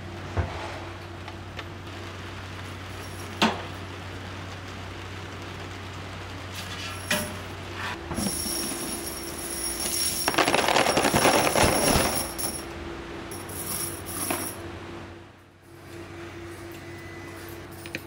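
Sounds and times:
metal parts clattering into crate: 0:08.1 - 0:12.6, 0:13.4 - 0:14.6.

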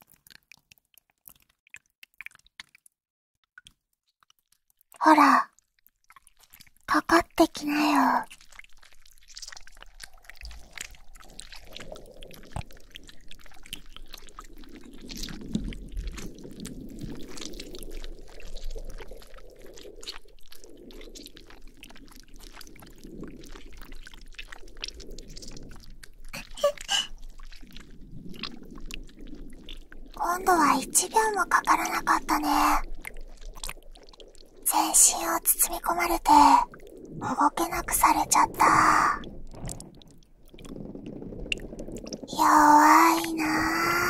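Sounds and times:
slime squelching: 0:25.4 - 0:28.6, 0:41.5 - 0:44.0.

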